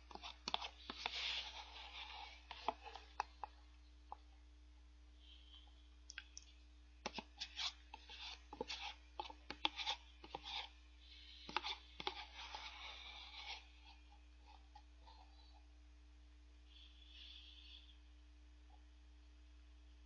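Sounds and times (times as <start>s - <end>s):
spoon scraping shaved ice: 7.1s - 10.7s.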